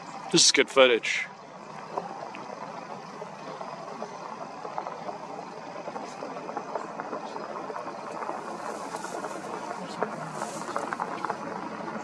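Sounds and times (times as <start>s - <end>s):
steady rushing noise: 0.0s - 12.0s
faint ticks: 1.6s - 12.0s.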